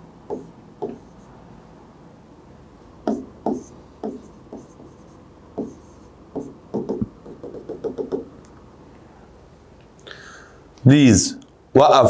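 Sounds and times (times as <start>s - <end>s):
pen writing on whiteboard screen: 0.3s - 1.3s, 3.1s - 8.2s.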